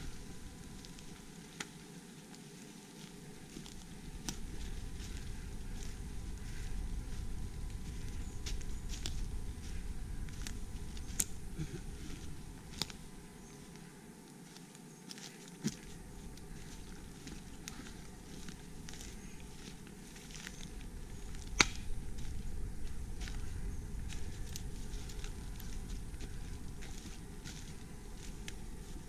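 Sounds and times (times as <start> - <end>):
footsteps through leaf litter: 0.0 - 29.0
twigs snapping: 3.6 - 6.6, 12.1 - 13.0, 14.5 - 28.6
low rumble: 3.7 - 13.4, 15.9 - 29.0.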